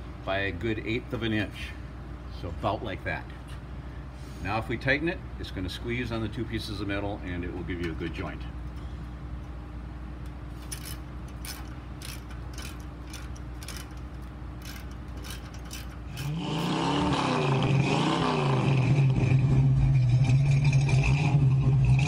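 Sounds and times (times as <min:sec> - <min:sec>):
ratcheting socket wrench clicking: 0:10.2 - 0:16.4
car engine revving: 0:16.1 - 0:22.0.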